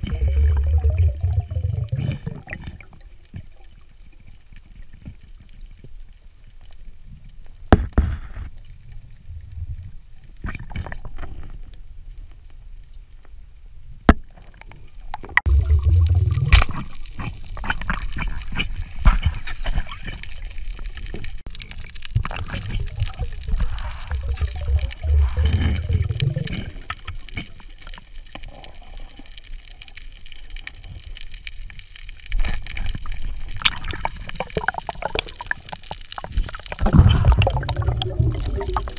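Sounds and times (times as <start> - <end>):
low rumble: 0.0 - 2.4, 15.5 - 17.0, 22.9 - 27.0
muffled underwater gurgling: 0.0 - 2.9, 15.5 - 20.2, 22.2 - 27.6, 33.1 - 38.9.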